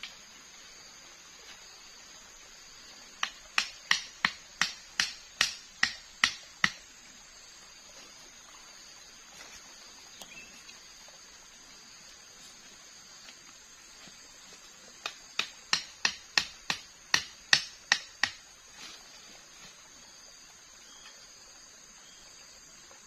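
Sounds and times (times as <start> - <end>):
machete striking wooden stakes: 3.2 - 6.9, 15.0 - 18.5.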